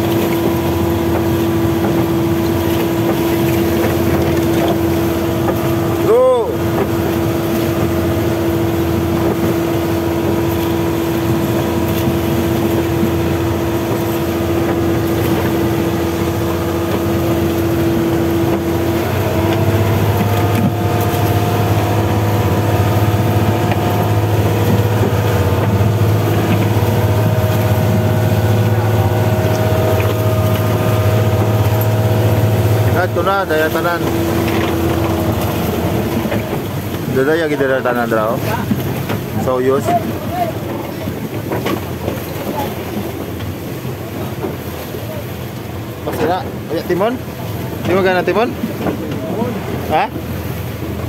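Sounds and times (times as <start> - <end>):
boat engine running: 0.0 - 51.0
water noise: 0.0 - 51.0
wind: 0.0 - 51.0.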